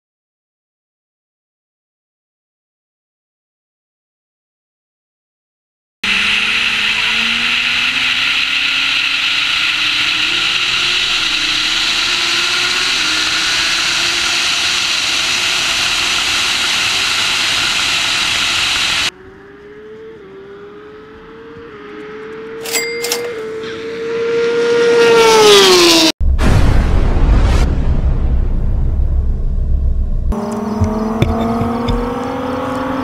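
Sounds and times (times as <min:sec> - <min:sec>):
car engine accelerating hard: 0:06.0 - 0:22.6, 0:23.4 - 0:26.1, 0:30.3 - 0:33.0.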